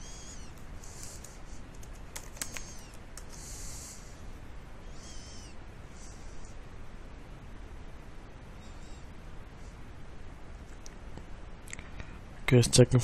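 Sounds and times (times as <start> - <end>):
steady hiss: 0.0 - 13.0
keyboard typing: 0.4 - 3.6.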